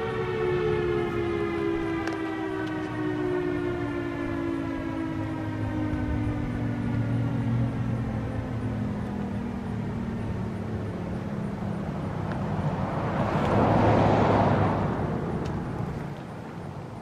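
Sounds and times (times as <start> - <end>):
siren winding down: 0.0 - 12.1
passing vehicle road noise: 0.0 - 17.0.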